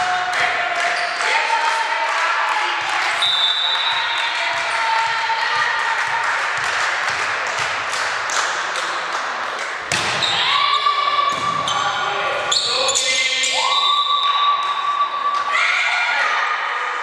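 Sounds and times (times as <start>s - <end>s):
volleyball bouncing on floor: 9.9s - 10.4s.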